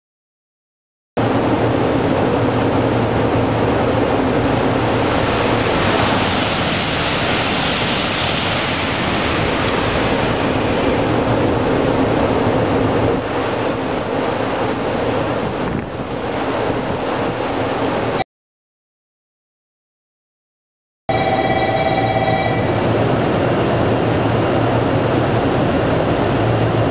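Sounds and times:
high-speed train rushing past: 0:01.2 - 0:18.2, 0:21.1 - 0:26.9
steady low hum: 0:01.2 - 0:18.2
wind buffeting microphone: 0:01.2 - 0:18.2.

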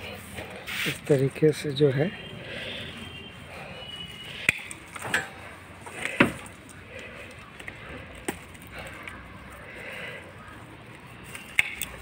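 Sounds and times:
pruning shears snipping stems: 0:04.4 - 0:09.2, 0:11.2 - 0:12.0.

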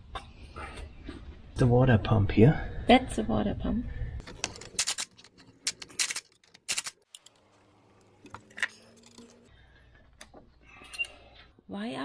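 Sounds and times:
hand tools clinking: 0:04.3 - 0:07.4.

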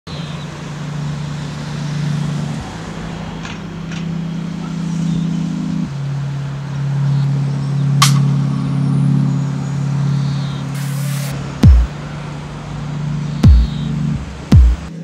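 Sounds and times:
low synth pad chord: 0:00.1 - 0:15.0.

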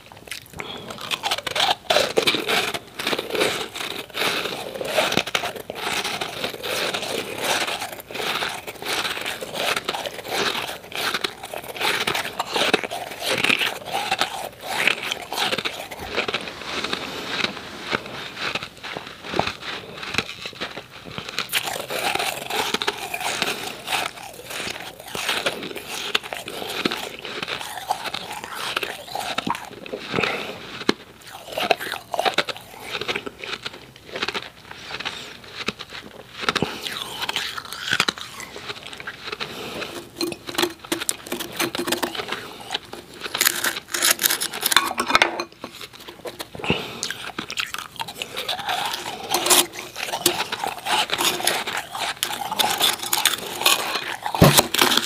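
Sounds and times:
ice cubes being chewed: 0:00.0 - 0:55.0.

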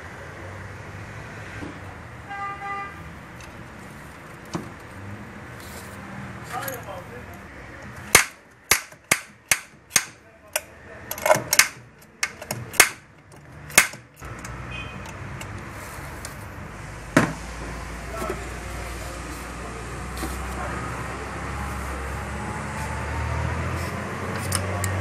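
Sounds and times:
hand tools clicking on metal: 0:07.8 - 0:15.6, 0:24.3 - 0:25.0.

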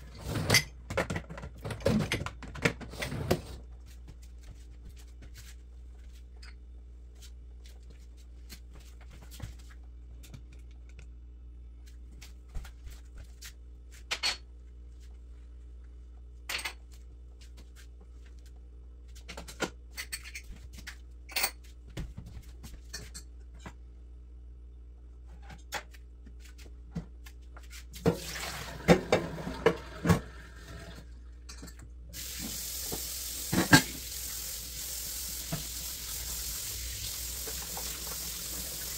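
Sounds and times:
faucet running into sink: 0:28.1 - 0:31.1, 0:32.2 - 0:38.9
dishes clinking and clattering: 0:33.5 - 0:34.0.

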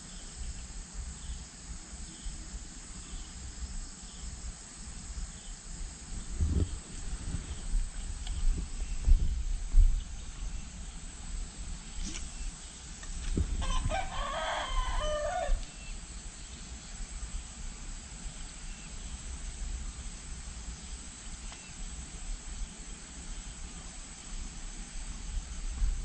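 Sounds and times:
rooster crowing: 0:13.6 - 0:15.9.

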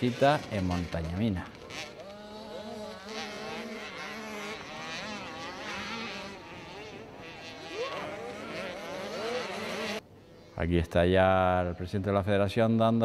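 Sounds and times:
dirt bike engines revving: 0:00.0 - 0:10.4.

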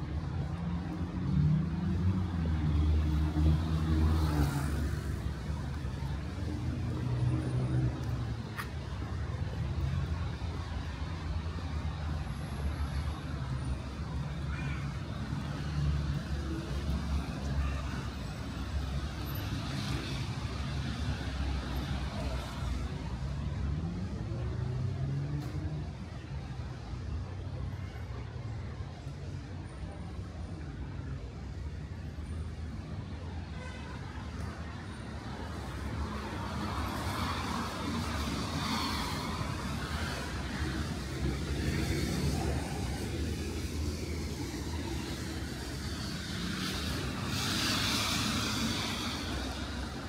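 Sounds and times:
traffic engine rumble: 0:00.0 - 0:50.0
tyres hissing on wet road: 0:35.8 - 0:50.0
car passing on wet road: 0:44.6 - 0:50.0.

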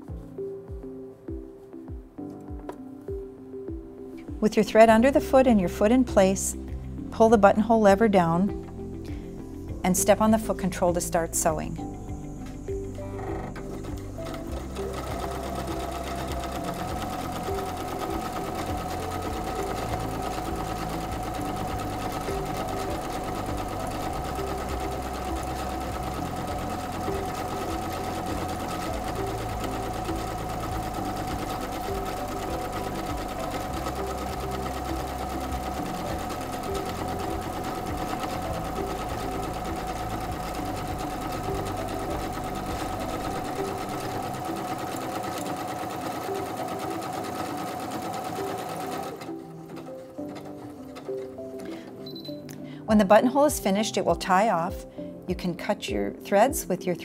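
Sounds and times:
sewing machine stitching: 0:13.1 - 0:52.2.

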